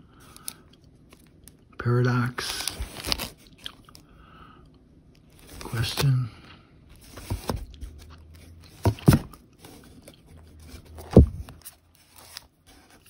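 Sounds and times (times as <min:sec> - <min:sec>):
paper rustling: 0:02.4 - 0:03.4, 0:07.0 - 0:13.0.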